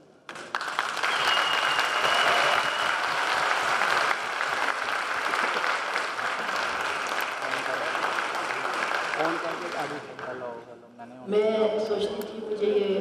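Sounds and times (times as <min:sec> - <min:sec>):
audience applauding: 0:00.3 - 0:10.6.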